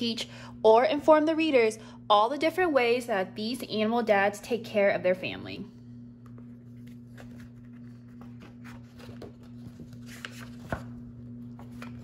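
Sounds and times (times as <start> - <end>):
steady low hum: 0.0 - 12.0
book pages rustling: 6.3 - 12.0.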